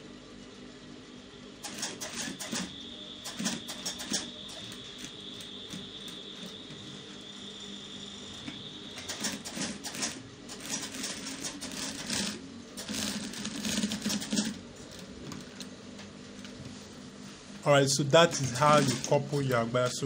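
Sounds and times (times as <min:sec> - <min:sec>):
sewing machine needle clatter: 0:01.6 - 0:02.7, 0:09.0 - 0:14.6.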